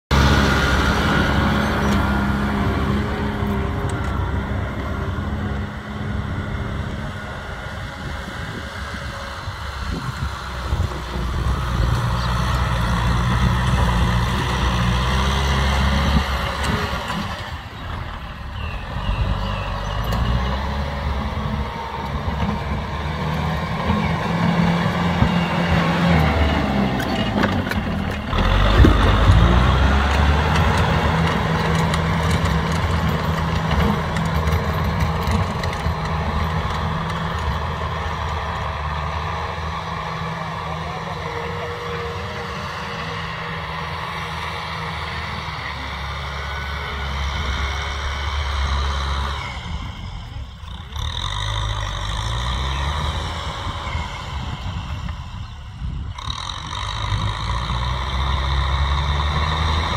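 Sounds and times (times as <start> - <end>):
tractor diesel engine under load: 0.0 - 59.9
rotary tiller in soil: 0.1 - 59.9.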